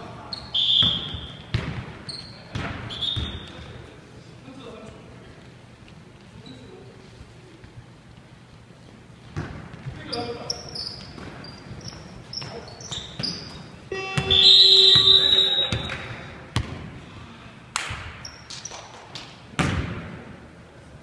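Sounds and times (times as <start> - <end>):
sneakers squeaking on hardwood: 0.3 - 3.6, 9.2 - 16.0
basketball bouncing: 0.8 - 3.4, 9.3 - 10.0, 11.0 - 15.1, 15.7 - 16.9, 19.5 - 20.2
loud electronic tone: 13.9 - 15.7.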